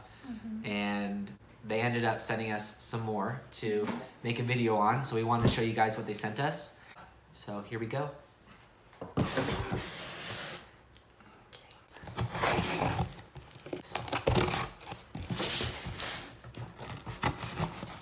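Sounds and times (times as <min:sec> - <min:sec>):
scissors cutting cardboard: 0:12.0 - 0:18.0.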